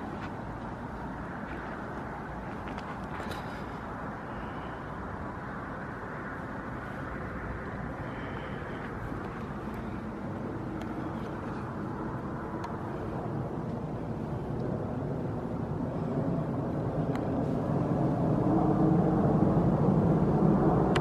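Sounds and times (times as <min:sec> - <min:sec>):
constant low rush: 0:00.0 - 0:21.0.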